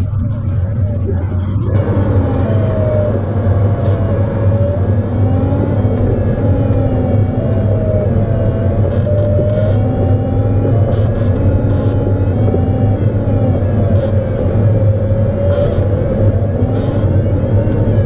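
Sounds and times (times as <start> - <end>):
airflow rumble around cockpit: 0.0 - 18.0.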